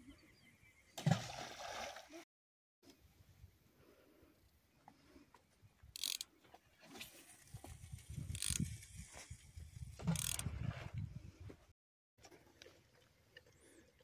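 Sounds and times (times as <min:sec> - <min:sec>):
mechanism clicking and ratcheting: 0:06.0 - 0:06.3, 0:08.3 - 0:08.8, 0:10.1 - 0:10.5.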